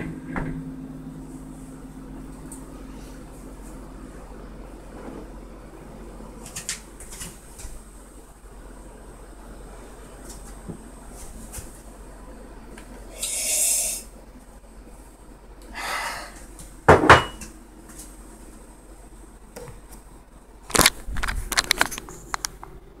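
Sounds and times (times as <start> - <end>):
camera handling clicks and bumps: 20.7 - 22.5.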